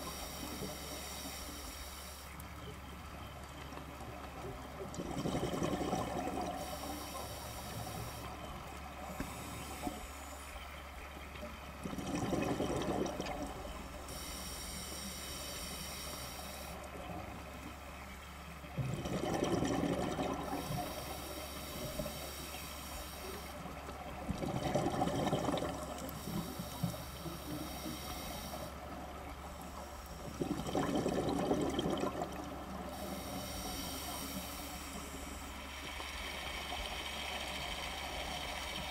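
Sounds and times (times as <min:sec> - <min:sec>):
gurgling exhaled bubbles: 0:04.8 - 0:06.9, 0:11.8 - 0:13.8, 0:18.8 - 0:21.0, 0:24.2 - 0:26.1, 0:30.2 - 0:33.1.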